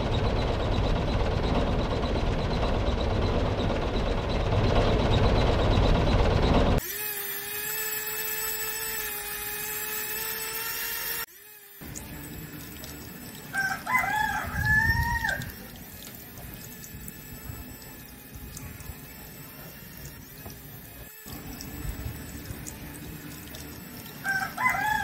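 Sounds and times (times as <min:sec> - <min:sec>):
small motor whining: 0:06.8 - 0:25.0
water pump hissing: 0:06.8 - 0:25.0
rooster crowing: 0:13.4 - 0:15.7, 0:24.2 - 0:25.0.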